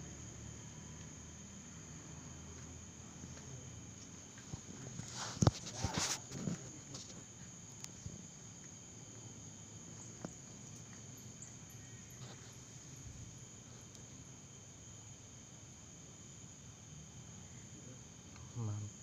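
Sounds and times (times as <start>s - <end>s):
crickets trilling: 0.0s - 19.0s.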